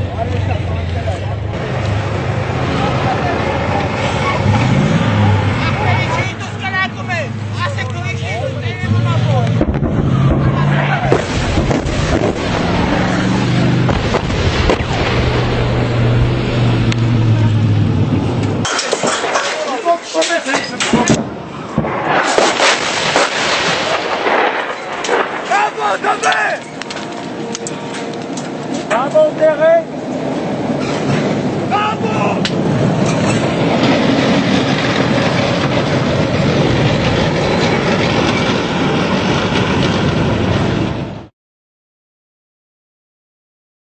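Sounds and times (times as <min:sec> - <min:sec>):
engine-like hum: 0:00.0 - 0:19.4, 0:26.6 - 0:41.3
sharp cracks: 0:09.4 - 0:15.7, 0:18.4 - 0:29.0
wind noise on microphone: 0:09.5 - 0:18.7.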